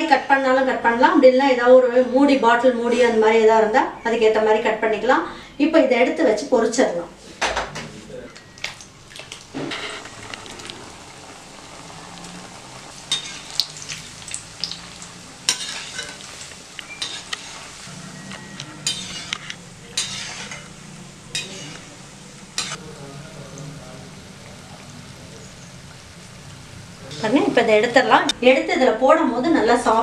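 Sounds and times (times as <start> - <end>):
dough sizzling in hot oil: 8.7 - 28.4
ladle scraping and knocking pan: 18.4 - 21.8.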